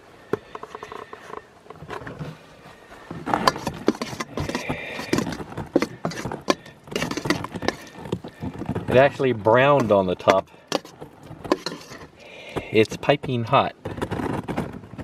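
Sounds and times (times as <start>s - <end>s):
metal spoon scraping bowl: 3.3s - 12.2s.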